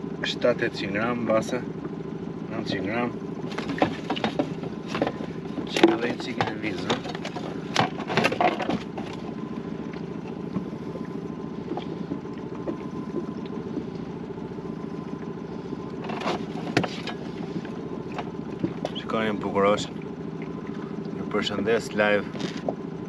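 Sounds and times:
boat motor humming: 0:00.0 - 0:23.0
knocks and clatters in boat: 0:02.6 - 0:23.0.

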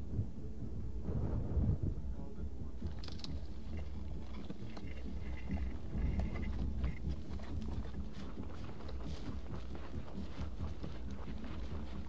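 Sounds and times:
wind rumble on microphone: 0:00.0 - 0:12.0
footsteps on gravel: 0:02.9 - 0:12.0.

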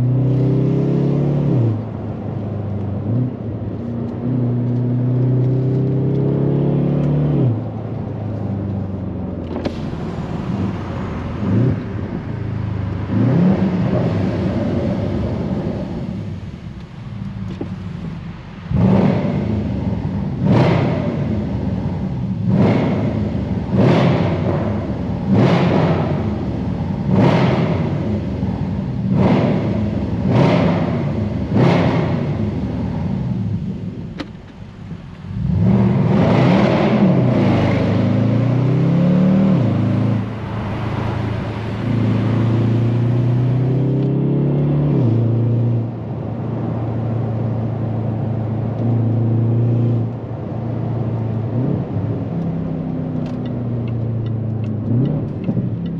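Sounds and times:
car engine running unevenly: 0:07.5 - 0:36.4, 0:37.1 - 0:45.2.

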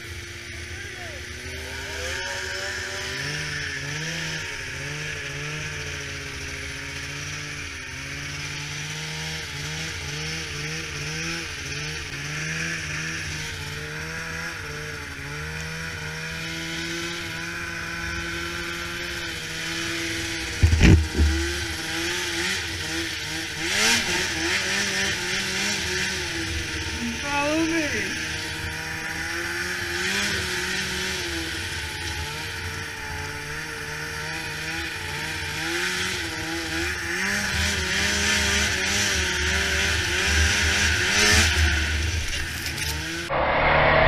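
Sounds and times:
snowmobile engine running: 0:00.0 - 0:44.0
loud thump: 0:20.4 - 0:21.8.

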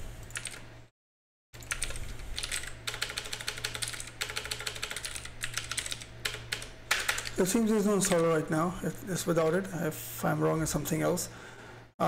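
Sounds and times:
rapid keyboard typing: 0:00.3 - 0:00.6, 0:01.6 - 0:08.5
low steady hum: 0:01.6 - 0:12.0.

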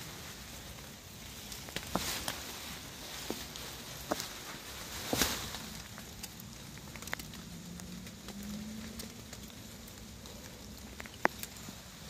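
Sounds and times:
footsteps on a trail: 0:01.5 - 0:06.1.

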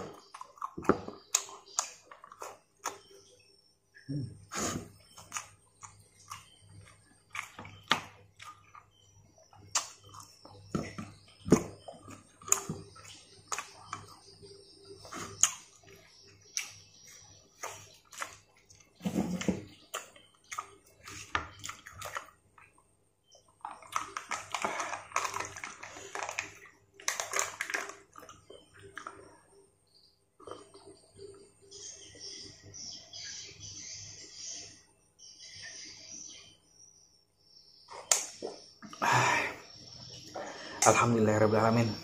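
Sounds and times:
plastic cup crinkling: 0:23.6 - 0:29.2.

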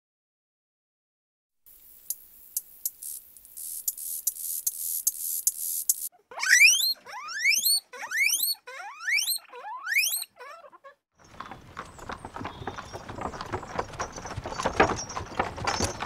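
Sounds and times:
crackling clicking noise: 0:01.7 - 0:06.1
guinea pig squealing: 0:04.4 - 0:11.0.

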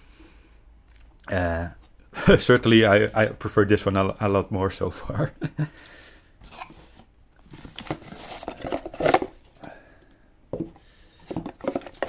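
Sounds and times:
cardboard sleeve scraping: 0:06.4 - 0:09.5.

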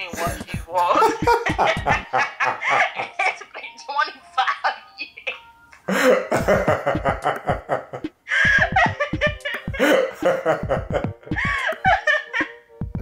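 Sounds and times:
laughter in rapid pulses: 0:01.0 - 0:03.3, 0:06.3 - 0:12.6.

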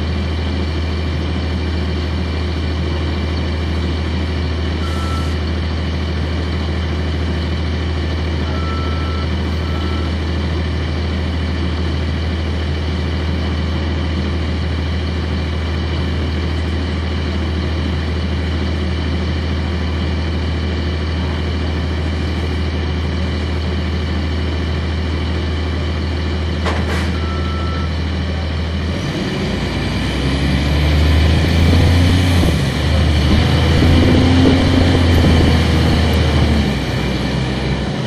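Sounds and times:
bus diesel engine idling: 0:00.0 - 0:30.3, 0:30.9 - 0:38.0
short beep: 0:04.8 - 0:05.4, 0:08.4 - 0:10.1, 0:27.1 - 0:27.9
bus engine revving: 0:28.0 - 0:38.0.

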